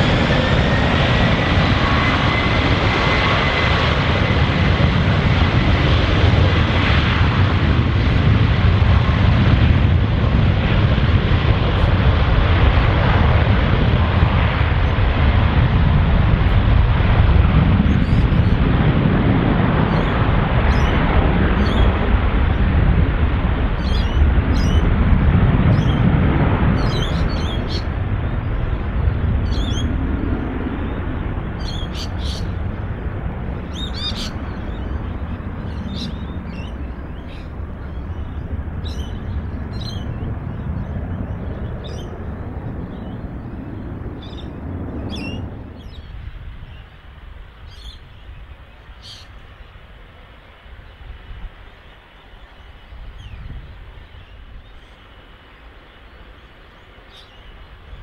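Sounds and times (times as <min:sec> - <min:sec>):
jet engine rumble: 0:00.0 - 0:58.0
small birds chirping: 0:31.6 - 0:32.6, 0:33.7 - 0:42.2, 0:47.6 - 0:49.8, 0:51.8 - 0:58.0.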